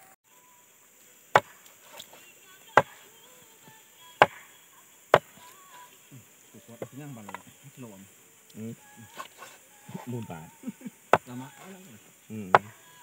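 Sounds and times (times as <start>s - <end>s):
knife chopping on wooden board: 1.4s - 2.1s.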